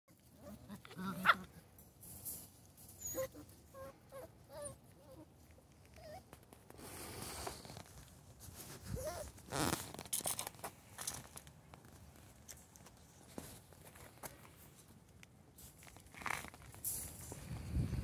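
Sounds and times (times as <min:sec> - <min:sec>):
puppies whining and yipping: 0:02.9 - 0:06.4, 0:08.9 - 0:09.3.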